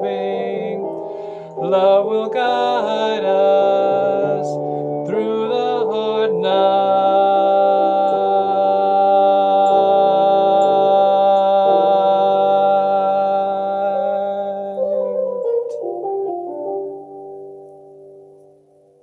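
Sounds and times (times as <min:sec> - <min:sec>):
man singing a long note: 0:00.0 - 0:15.2
instrumental accompaniment: 0:00.0 - 0:19.0.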